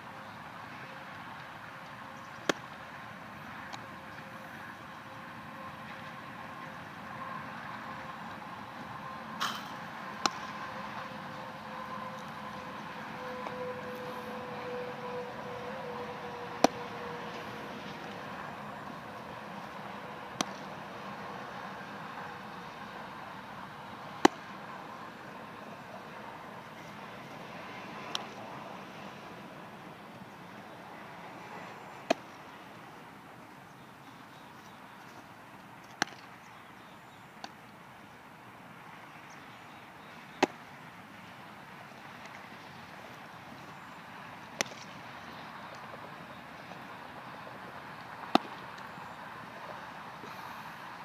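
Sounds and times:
outdoor background noise: 0.0 - 51.0
steady background hum: 0.0 - 51.0
ball smacking into glove: 16.6 - 16.8.

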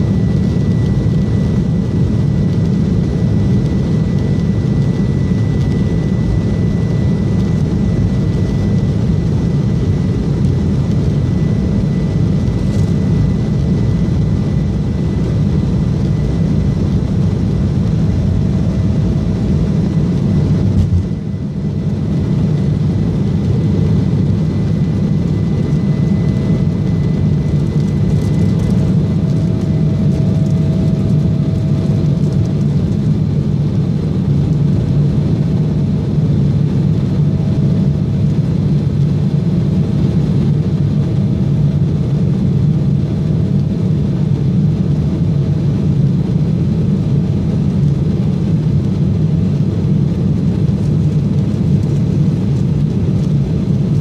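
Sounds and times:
jet engine noise in cabin: 0.0 - 54.0.

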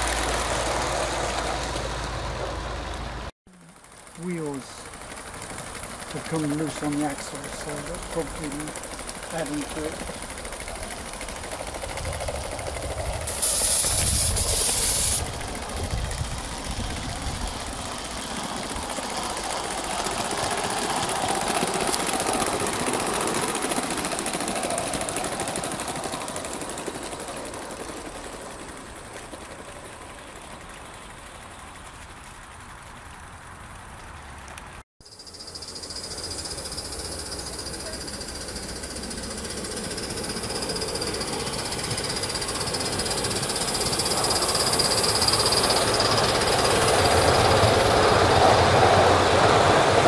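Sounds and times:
steam locomotive running: 0.0 - 34.6, 35.4 - 50.0
loud hiss of steam: 13.2 - 15.3.

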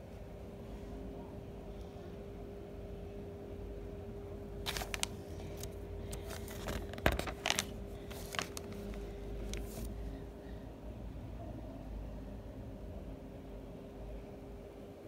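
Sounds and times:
faint steady hum: 0.0 - 15.0
paper crinkles and handling clicks: 4.6 - 10.0
magazine pages rustling: 4.7 - 10.0.

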